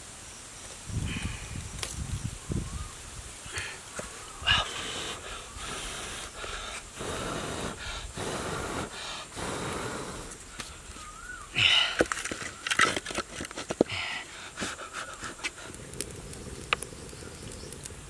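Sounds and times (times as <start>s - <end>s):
person blowing on fire: 0.9s - 2.0s, 4.4s - 12.3s, 13.8s - 18.0s.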